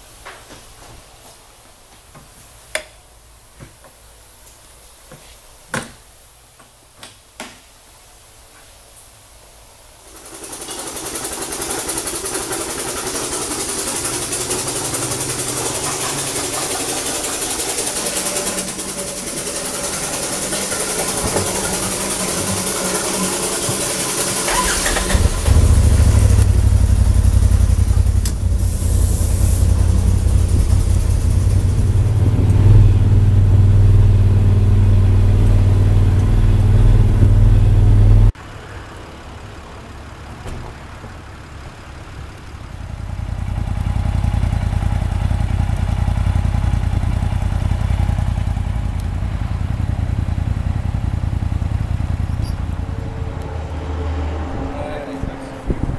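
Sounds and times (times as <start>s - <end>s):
engine running with hiss: 8.1s - 55.9s
deep engine rumble: 12.2s - 55.9s.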